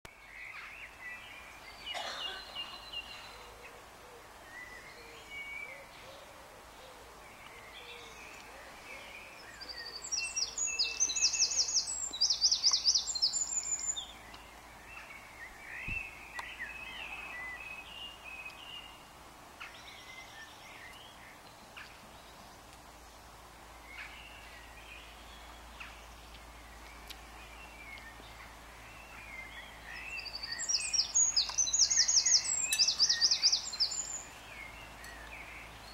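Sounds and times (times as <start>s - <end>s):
background hiss: 0.1s - 35.9s
songbirds singing: 0.1s - 35.9s.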